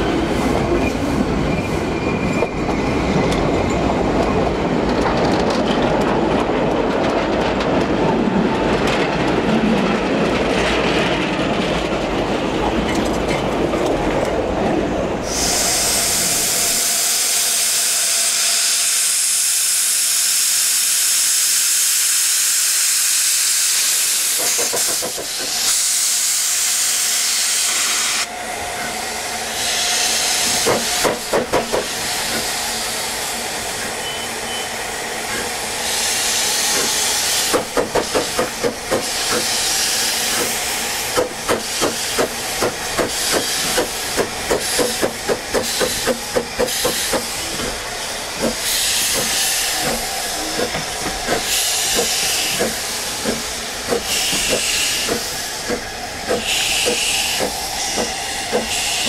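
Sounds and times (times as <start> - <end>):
steam hissing: 15.2 - 28.3, 28.9 - 34.1, 34.9 - 59.0
steam locomotive exhaust beats: 35.3 - 59.0.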